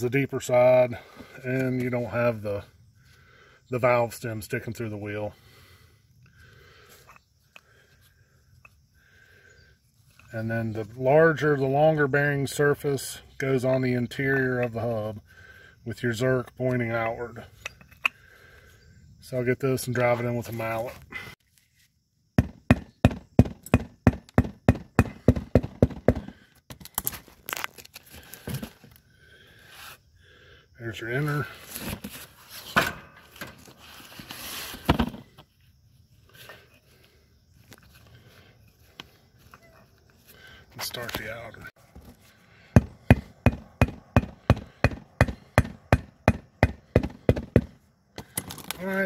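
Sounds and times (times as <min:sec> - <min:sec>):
rubber mallet striking bushing: 0:42.8 - 0:47.8.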